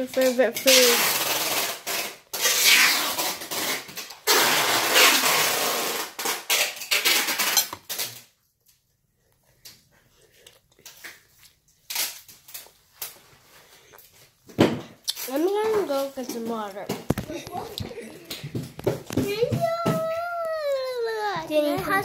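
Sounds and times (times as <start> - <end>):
quiet chewing: 8.6 - 11.9, 12.6 - 15.6, 16.6 - 18.9.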